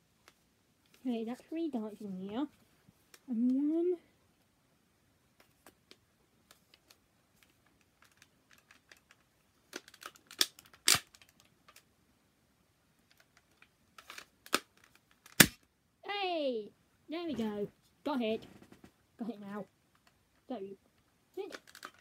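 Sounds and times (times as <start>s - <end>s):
plastic toy clicks and rattles: 6.8s - 11.8s, 21.4s - 22.0s.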